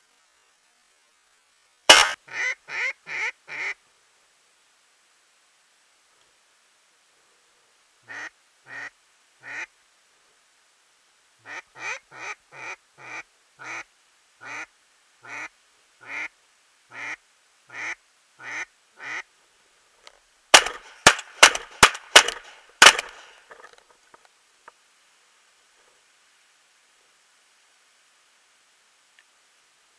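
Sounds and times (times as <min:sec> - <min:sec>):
loud sharp bangs: 0:01.9 - 0:02.2, 0:20.5 - 0:23.5
duck call quacks: 0:01.9 - 0:03.8, 0:08.1 - 0:09.7, 0:11.4 - 0:16.3, 0:16.9 - 0:19.2.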